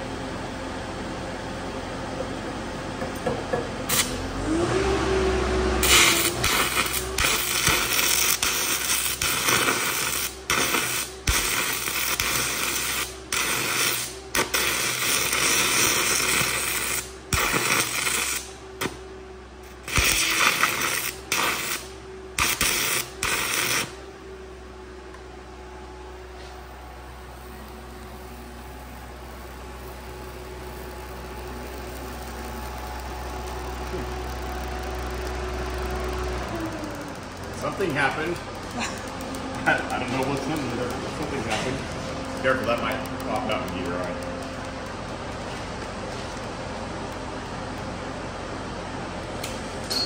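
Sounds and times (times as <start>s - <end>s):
welder engine running: 0.0s - 50.0s
welding arc crackling hiss: 3.8s - 4.3s, 5.8s - 19.0s, 19.6s - 24.0s, 26.6s - 48.4s.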